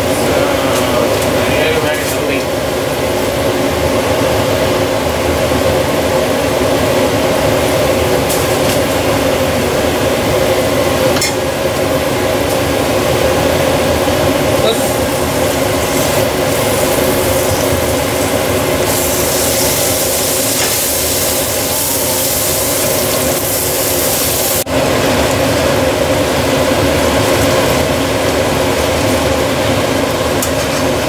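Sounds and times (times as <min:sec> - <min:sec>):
steady mechanical hum: 0:00.0 - 0:31.0
food sizzling in a frying pan: 0:14.7 - 0:25.4.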